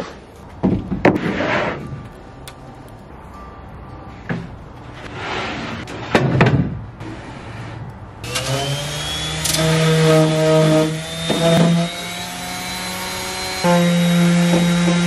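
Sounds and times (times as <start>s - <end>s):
electric orbital sander whine: 8.2s - 15.0s.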